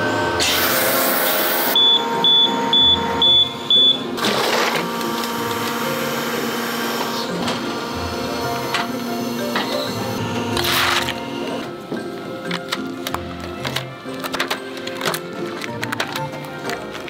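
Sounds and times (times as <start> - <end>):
steady machine hum: 0.0 - 12.2
short high beeps: 1.8 - 4.1.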